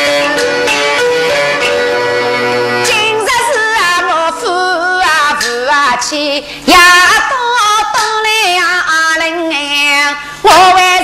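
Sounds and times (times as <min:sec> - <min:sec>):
woman singing opera aria: 0:02.9 - 0:11.0.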